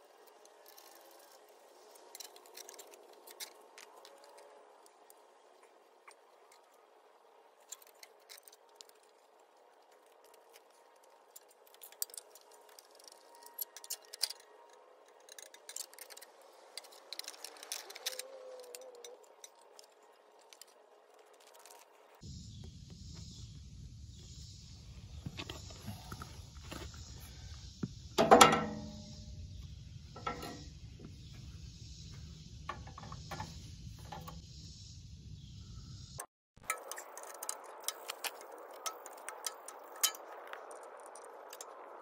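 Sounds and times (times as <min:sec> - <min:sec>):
sharp metal knocks: 0:28.2 - 0:29.1.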